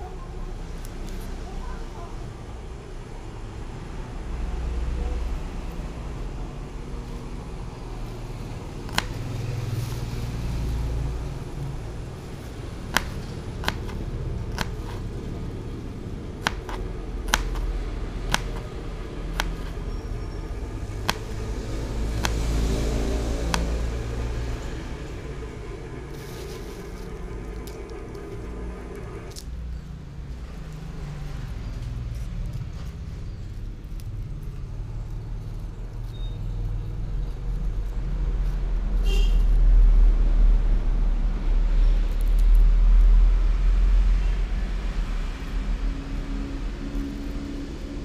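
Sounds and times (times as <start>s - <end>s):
low rumble: 9.4s - 48.0s
knife tapping plastic cutting board: 16.4s - 17.6s.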